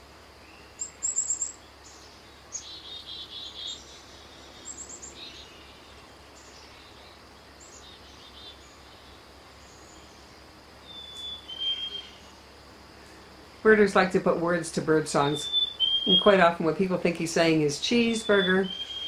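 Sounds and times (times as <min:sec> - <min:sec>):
two-note whistled bird song: 0:11.0 - 0:12.2, 0:15.3 - 0:16.3, 0:18.2 - 0:19.0.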